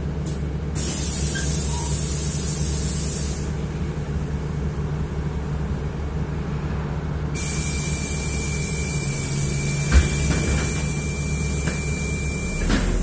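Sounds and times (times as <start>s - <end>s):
bus engine idling: 0.0s - 13.0s
compressed air hiss: 0.8s - 3.5s.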